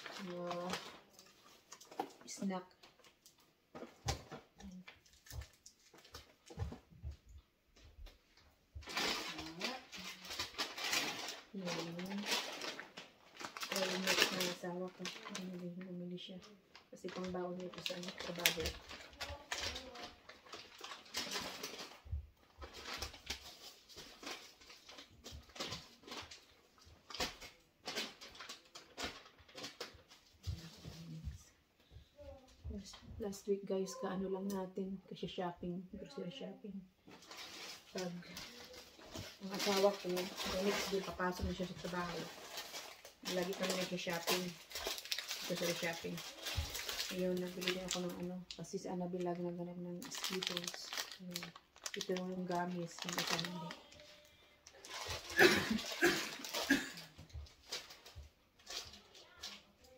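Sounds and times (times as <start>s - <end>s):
plastic rustling: 0.0s - 34.1s, 37.0s - 59.9s
boxes knocking and crinkling: 3.7s - 4.6s.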